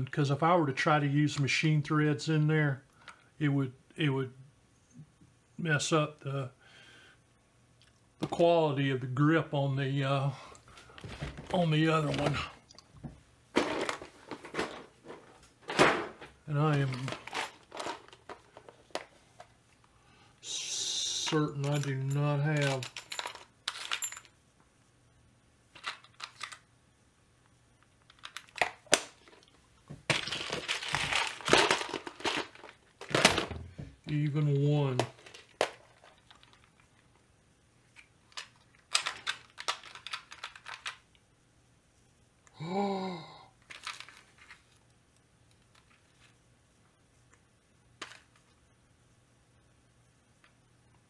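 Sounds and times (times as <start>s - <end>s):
rustling of bags: 10.7s - 19.5s, 29.2s - 34.0s
small screws rattling: 21.5s - 24.3s, 35.0s - 36.9s, 38.3s - 41.0s
man humming: 42.5s - 43.5s.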